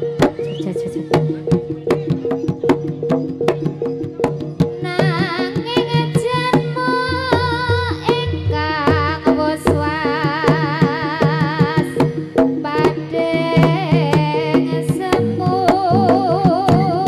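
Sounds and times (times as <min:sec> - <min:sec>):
high wavering melody: 0:00.0 - 0:10.1
hand drum strokes: 0:00.0 - 0:17.0.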